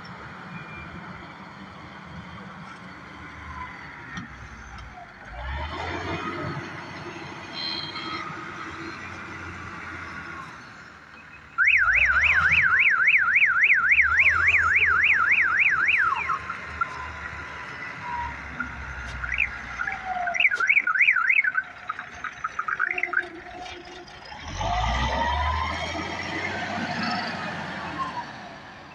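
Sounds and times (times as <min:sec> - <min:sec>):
machinery engine rumble: 0:00.0 - 0:28.9
warbling electronic alarm: 0:11.6 - 0:17.2, 0:18.1 - 0:24.2.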